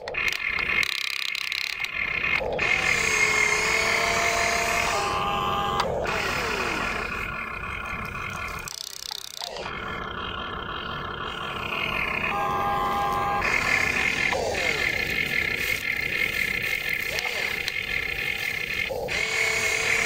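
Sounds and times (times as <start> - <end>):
toy excavator motors whining: 0.0 - 20.0.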